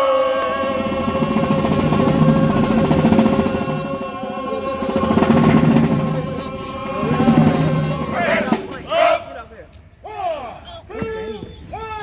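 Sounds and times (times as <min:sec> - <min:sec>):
snare drum roll: 0:00.0 - 0:09.0
marching band playing: 0:00.0 - 0:09.6.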